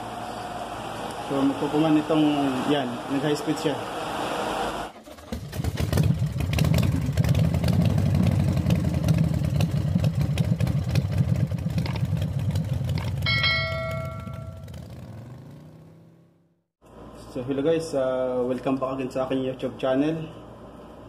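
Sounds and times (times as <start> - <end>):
pulsing low engine rumble: 5.9 - 14.8
ringing bell ding: 13.3 - 14.8.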